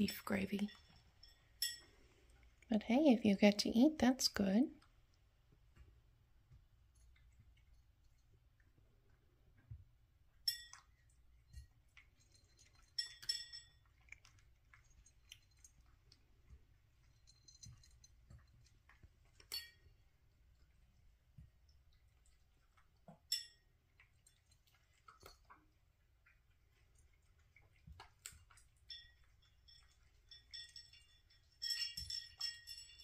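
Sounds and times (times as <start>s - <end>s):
kibble clinking against ceramic bowl: 0.0s - 2.7s, 10.3s - 33.0s
cat eating small clicks: 0.1s - 2.7s, 4.7s - 33.0s.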